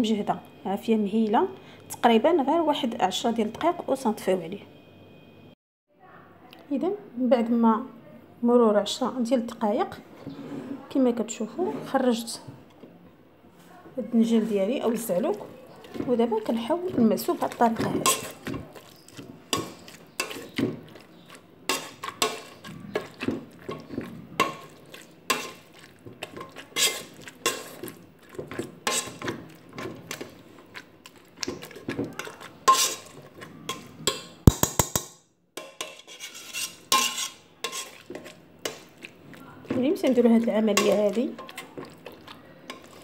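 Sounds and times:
metal masher clinking against pot: 16.9s - 20.6s.

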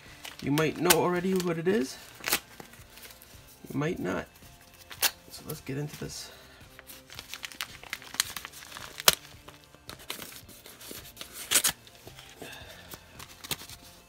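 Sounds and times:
padded envelope tearing and crinkling: 6.7s - 14.0s.

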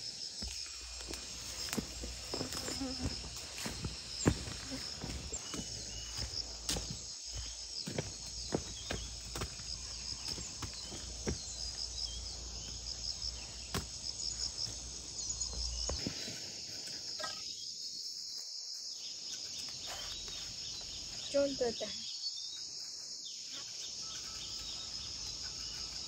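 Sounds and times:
insects droning and chirping: 0.0s - 26.0s
footsteps on rocky dirt path: 0.4s - 12.7s.

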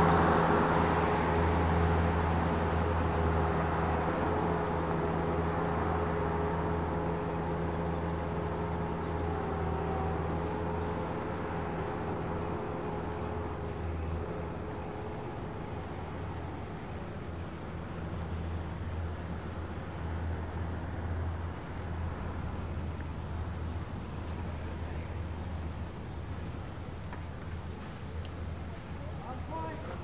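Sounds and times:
outdoor background noise: 0.0s - 30.0s
vehicle engine humming: 0.0s - 30.0s.

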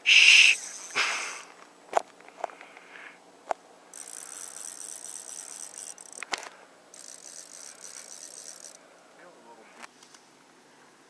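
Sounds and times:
fly reel clicker drag buzzing: 3.9s - 8.8s.

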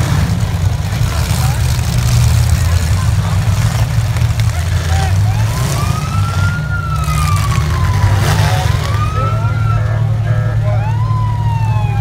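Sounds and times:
car engines rumbling: 0.0s - 12.0s
siren wailing: 5.1s - 12.0s.

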